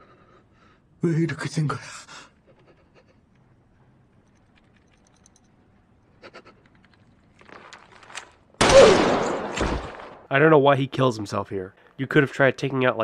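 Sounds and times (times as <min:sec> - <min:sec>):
faint clicks or rustles: 0:03.3 - 0:08.5.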